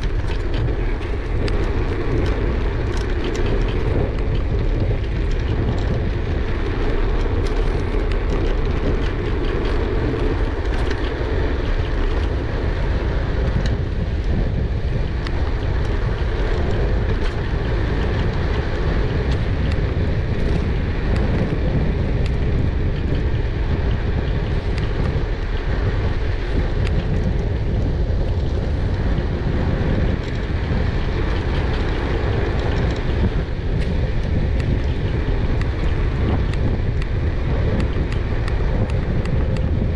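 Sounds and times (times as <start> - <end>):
light ticks and rattles: 0.0 - 39.9
wind buffeting microphone: 0.0 - 39.9.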